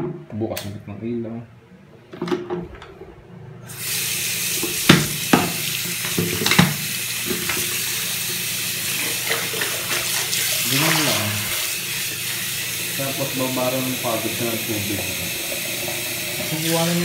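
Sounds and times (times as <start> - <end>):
tap water running into kettle: 3.8 - 17.0.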